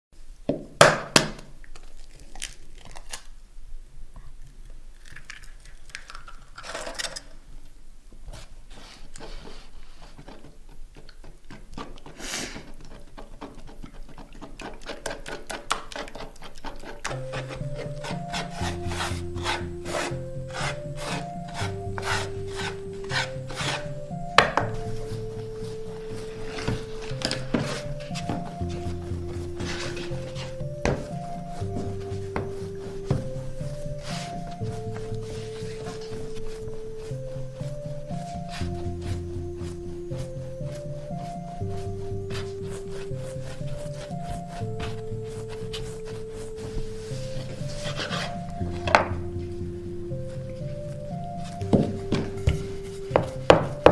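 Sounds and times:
eggshell cracking: 4.9s - 7.3s
hands kneading dough on wood: 8.2s - 53.9s
steady musical tones: 17.1s - 53.9s.

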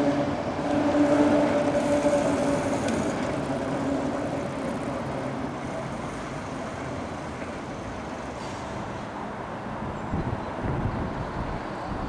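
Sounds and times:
electric tram rumbling: 0.0s - 12.0s.

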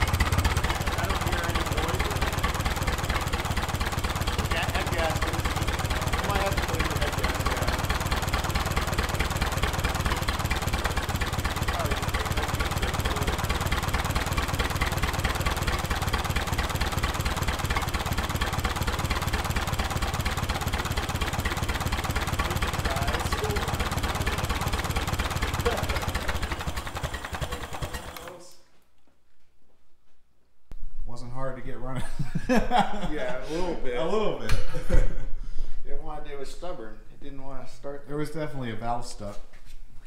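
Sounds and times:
tractor engine idling: 0.0s - 28.4s.

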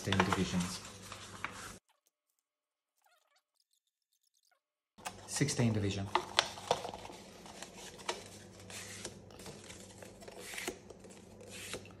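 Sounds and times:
paper rustling and crinkling: 0.0s - 1.8s, 6.0s - 11.9s.

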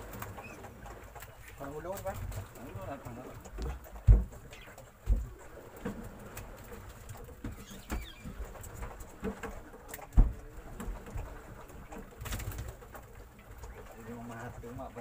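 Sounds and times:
knocks and thumps of boat gear: 3.4s - 6.1s, 7.0s - 13.2s.

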